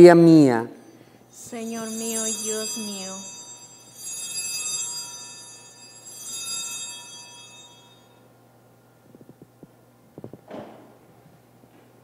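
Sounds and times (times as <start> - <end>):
altar bells ringing: 0.7 - 8.3.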